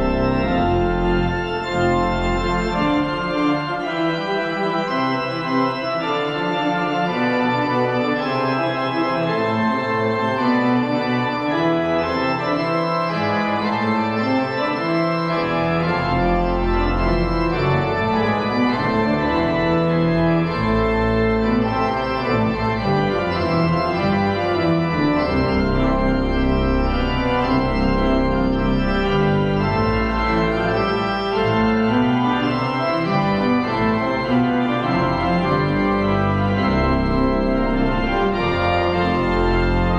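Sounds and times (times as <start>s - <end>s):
church organ chords: 0.0s - 39.9s
deep organ bass pedal notes: 0.0s - 39.9s.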